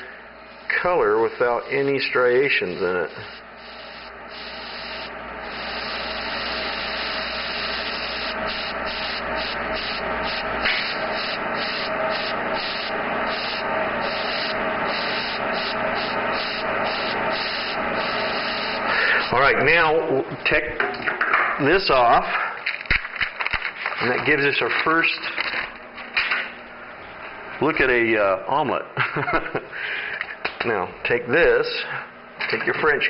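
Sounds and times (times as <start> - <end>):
airbrush spraying hiss: 0.5 - 19.5.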